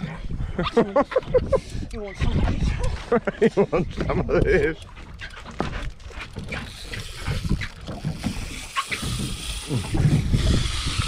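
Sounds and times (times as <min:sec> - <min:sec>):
wind on microphone: 0:00.0 - 0:04.8, 0:05.6 - 0:11.0
water against boat hull: 0:01.0 - 0:11.0
fishing reel clicks and knocks: 0:06.3 - 0:11.0.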